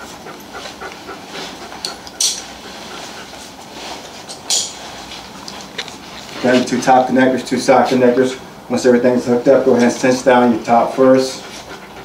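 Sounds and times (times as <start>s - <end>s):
metal buckles clinking: 4.3s - 4.8s.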